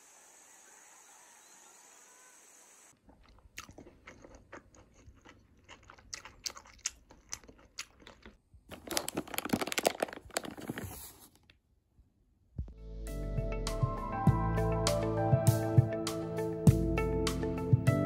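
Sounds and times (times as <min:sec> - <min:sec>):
plastic packaging crinkling: 0:07.1 - 0:11.5.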